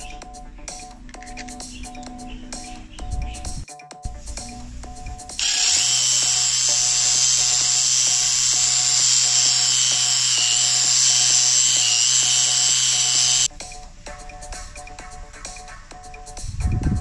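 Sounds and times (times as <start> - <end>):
drill motor humming: 5.4 - 13.5.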